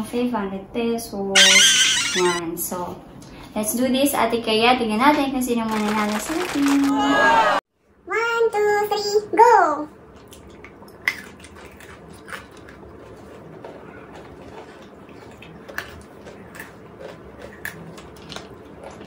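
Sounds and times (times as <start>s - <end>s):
chewing chocolates: 10.2s - 19.0s.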